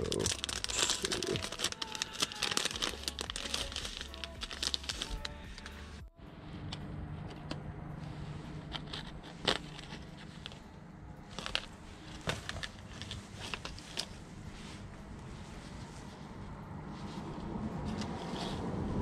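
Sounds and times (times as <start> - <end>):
package crackling open: 0.0 - 5.7, 11.3 - 14.1
low steady hum: 2.6 - 19.0.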